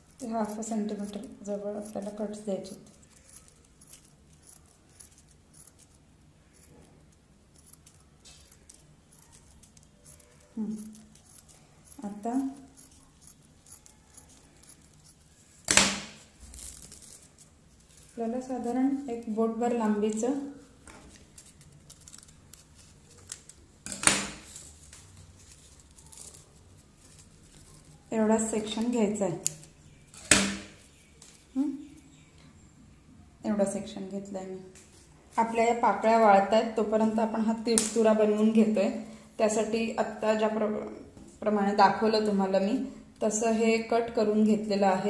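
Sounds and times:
scissors snipping paper: 0.0 - 31.4.

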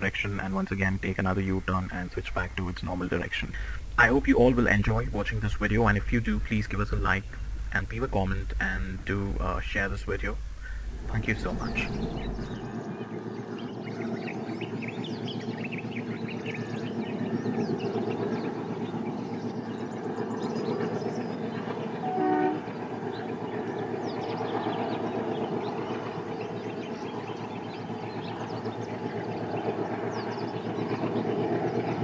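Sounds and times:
birds chirping: 0.0 - 32.0
diesel locomotive engine drone: 0.0 - 32.0
train horn blast: 22.0 - 22.8.

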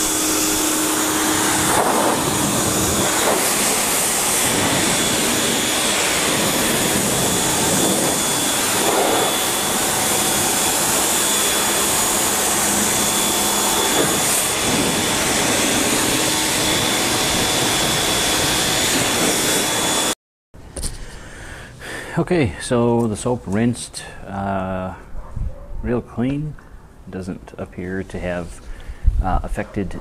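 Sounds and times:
pressure washer spraying: 0.0 - 20.1
high whine: 0.0 - 21.3.

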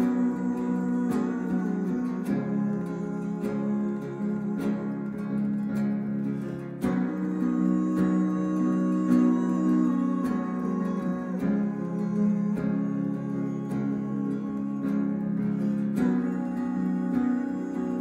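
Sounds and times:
acoustic guitar strumming: 0.0 - 18.0.

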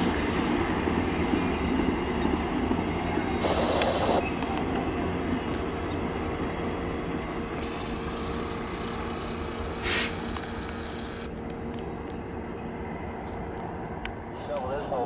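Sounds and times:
train wheels rumbling on rails: 0.0 - 15.0
short hiss: 9.8 - 10.2.

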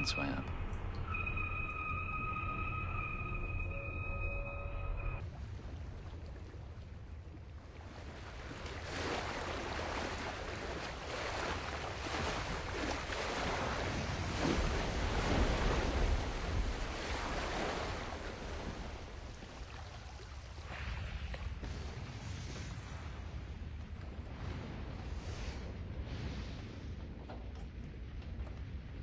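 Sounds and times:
low rumble: 0.0 - 7.7
wind: 0.0 - 29.0
sea waves washing: 7.6 - 23.7.

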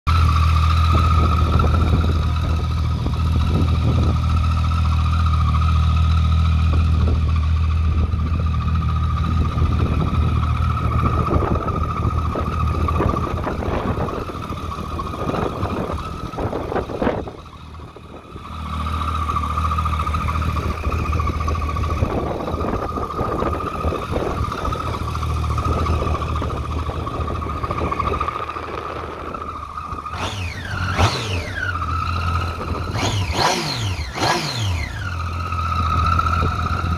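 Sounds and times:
motorcycle engine idling: 0.1 - 36.9.

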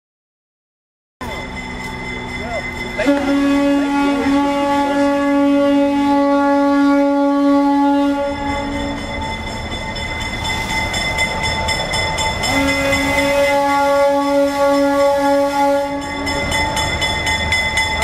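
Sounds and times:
train rumble: 1.2 - 18.0
train horn blast: 2.9 - 9.0, 12.4 - 16.4.

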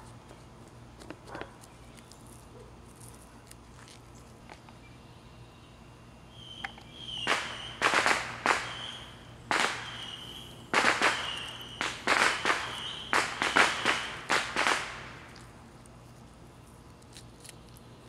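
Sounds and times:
firecrackers banging: 7.2 - 15.3.

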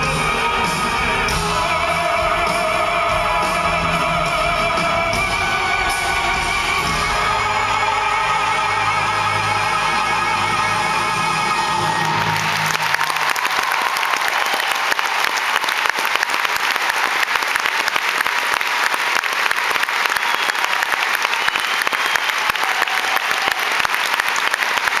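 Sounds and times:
audience applauding: 11.1 - 25.0.

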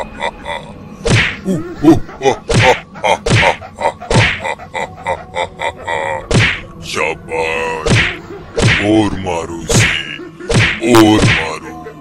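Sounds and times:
whacks and slaps of blows: 1.0 - 1.4, 2.5 - 3.5, 4.1 - 4.4, 6.3 - 6.6, 7.8 - 8.9, 10.5 - 11.4.

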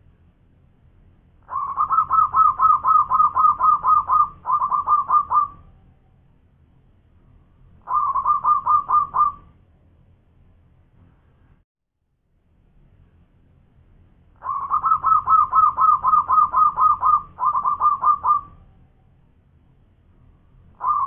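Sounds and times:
dove cooing: 1.4 - 5.7, 7.8 - 9.5, 14.4 - 18.6, 20.8 - 21.0.

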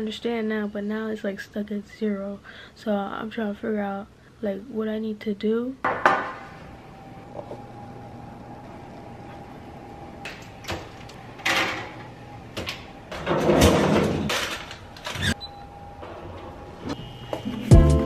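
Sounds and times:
drawer sliding out: 10.3 - 15.4.

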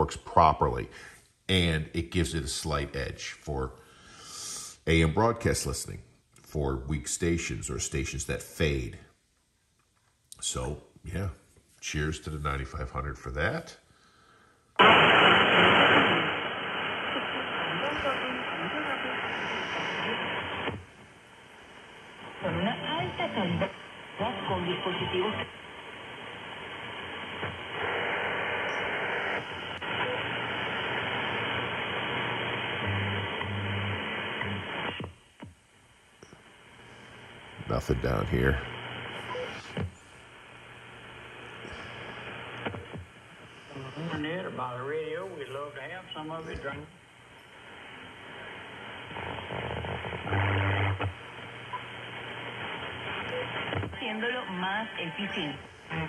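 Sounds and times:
radio static hiss: 0.0 - 9.1, 10.4 - 56.0.

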